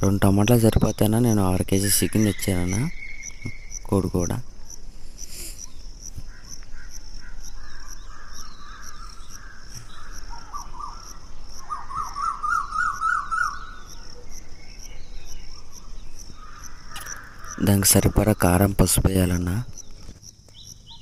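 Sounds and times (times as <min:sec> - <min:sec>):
crickets chirping: 0:00.0 - 0:21.0
wavering rising and falling call: 0:09.8 - 0:14.0.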